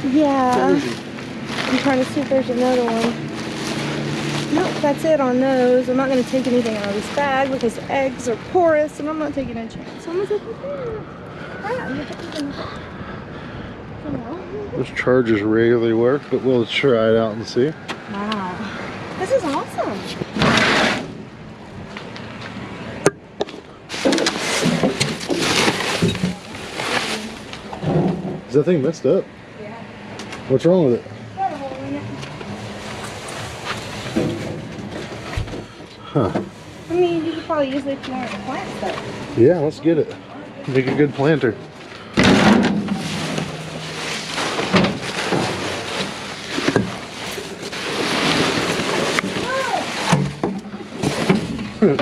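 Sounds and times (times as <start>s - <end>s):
plastic trash rustling and scraping: 0.2s - 9.4s, 19.2s - 21.3s, 23.4s - 28.6s, 32.4s - 39.5s, 40.7s - 52.0s
plastic crinkling and clattering: 0.4s - 7.8s, 23.4s - 28.5s, 41.8s - 52.0s.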